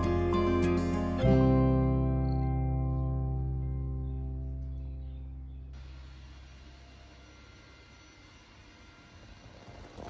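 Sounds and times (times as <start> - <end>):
sustained music chord: 0.0 - 5.9.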